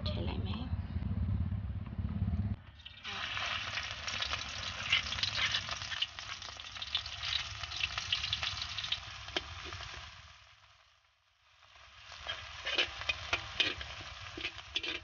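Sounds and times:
spice paste sizzling in hot oil: 2.8 - 15.0
metal spatula stirring in wok: 12.2 - 15.0.

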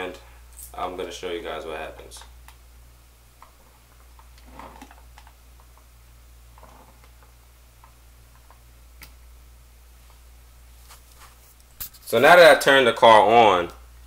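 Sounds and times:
steady low hum: 0.0 - 14.0
light rustling of hands: 10.0 - 12.2.

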